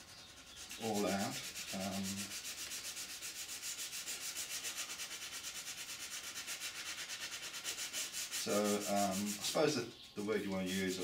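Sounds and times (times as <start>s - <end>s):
sandpaper rasping on plastic: 0.0s - 9.8s, 10.5s - 11.0s.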